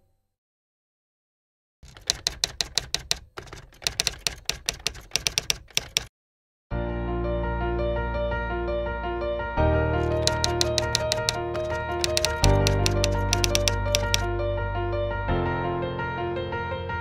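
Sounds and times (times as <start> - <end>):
typewriter key clacks: 1.8 - 6.1, 10.0 - 14.3.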